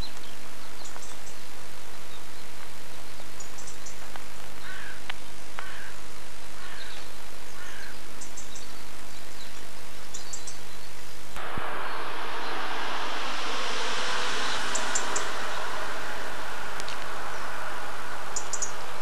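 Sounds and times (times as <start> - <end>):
tape hiss and hum: 11.4 - 19.0.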